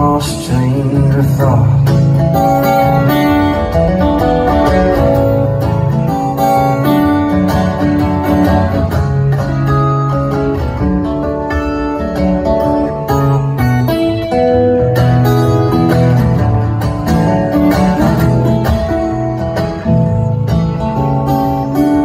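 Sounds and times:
amplified acoustic guitar: 0:00.0 - 0:22.0.

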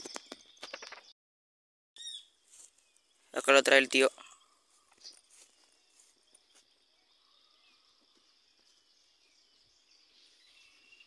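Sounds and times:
faint insect chirring: 0:02.0 - 0:11.0
faint bird calls: 0:03.2 - 0:08.9.

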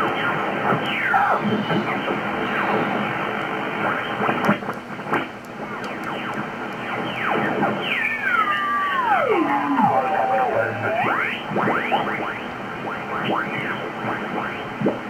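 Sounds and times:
radio band hiss: 0:00.0 - 0:15.0
radio stations sliding in pitch: 0:07.1 - 0:12.1.

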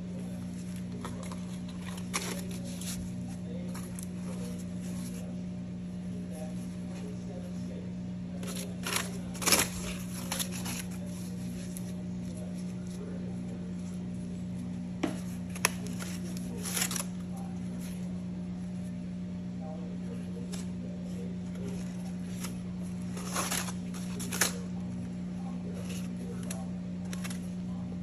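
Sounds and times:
low steady hum: 0:00.0 - 0:28.0
aluminium foil crinkling: 0:00.4 - 0:05.3, 0:08.4 - 0:13.0, 0:15.2 - 0:18.0, 0:21.5 - 0:25.1, 0:25.7 - 0:27.6.

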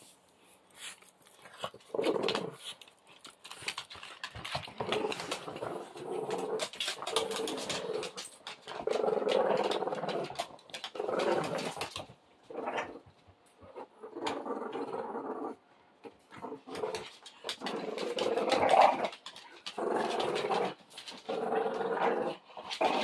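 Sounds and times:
dogs scuffling: 0:00.7 - 0:12.2, 0:16.6 - 0:23.0
paws clicking on wooden floor: 0:00.8 - 0:12.2, 0:16.6 - 0:23.0
dogs growling: 0:01.3 - 0:02.8, 0:03.5 - 0:23.0.

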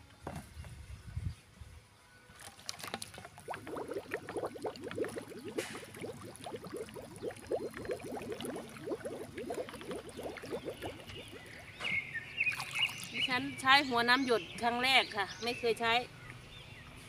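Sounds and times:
water gurgling into a bottle: 0:02.8 - 0:11.8.

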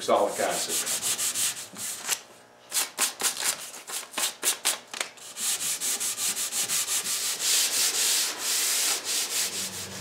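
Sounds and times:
sandpaper rubbing on wood: 0:00.0 - 0:02.2, 0:05.3 - 0:10.0.

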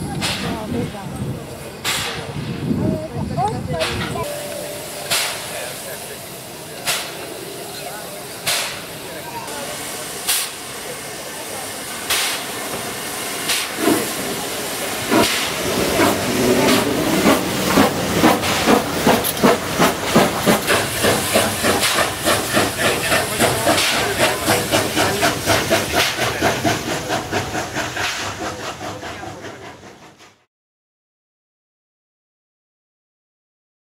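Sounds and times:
steam hissing: 0:03.8 - 0:30.4
steam locomotive exhaust chuffs: 0:03.8 - 0:30.5.

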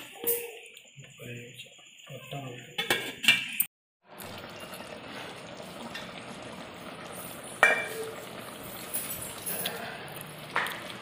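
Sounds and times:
curry simmering with sizzling hiss: 0:04.0 - 0:11.0.

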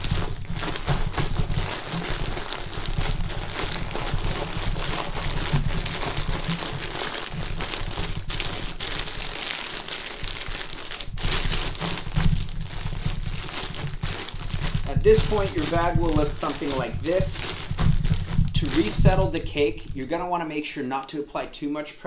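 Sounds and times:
plastic bag crinkling: 0:00.0 - 0:20.4.

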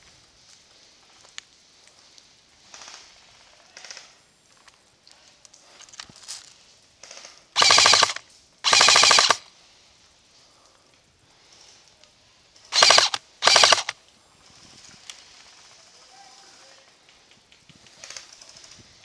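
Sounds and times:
airsoft rifle bursts: 0:07.1 - 0:09.5, 0:12.7 - 0:14.0.

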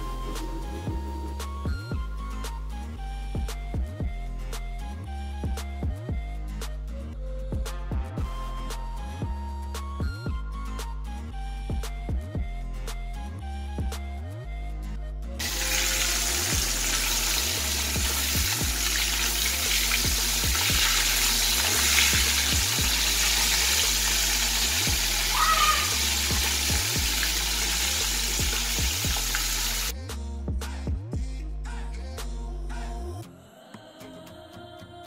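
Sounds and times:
background music with bass beat: 0:00.0 - 0:33.3
fish sizzling in hot oil: 0:15.4 - 0:29.9.

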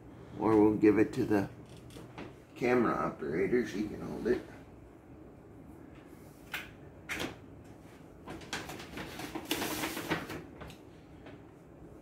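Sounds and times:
groceries rustling and scraping: 0:07.9 - 0:10.9.

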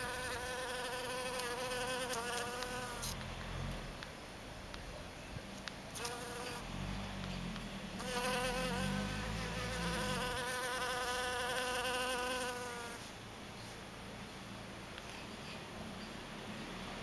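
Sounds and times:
honeybee buzzing: 0:00.0 - 0:03.2, 0:06.0 - 0:06.7, 0:08.0 - 0:13.0.

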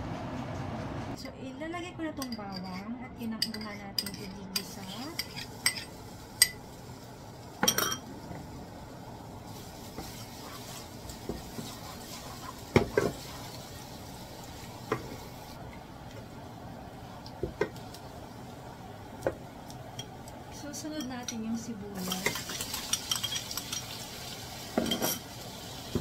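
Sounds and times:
metal spoon clinking on bowl: 0:03.4 - 0:06.6, 0:22.1 - 0:23.9
garlic sizzling in oil: 0:04.6 - 0:26.0.

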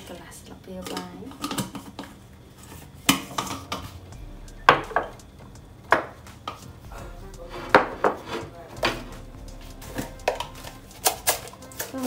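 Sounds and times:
dishes and utensils clattering: 0:00.8 - 0:04.1.

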